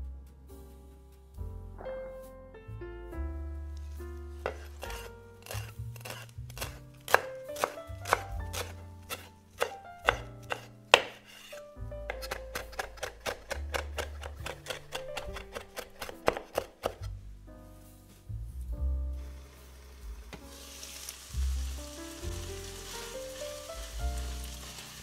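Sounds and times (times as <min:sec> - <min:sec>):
knife chopping on wooden board: 0:04.4 - 0:17.1.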